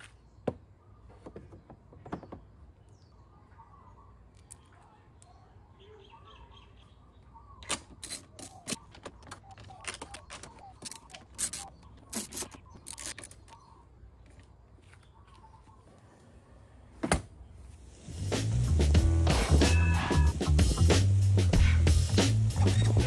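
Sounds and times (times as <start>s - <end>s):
faint birdsong: 0.0s - 17.9s
ratchet metal clicks: 7.6s - 13.6s.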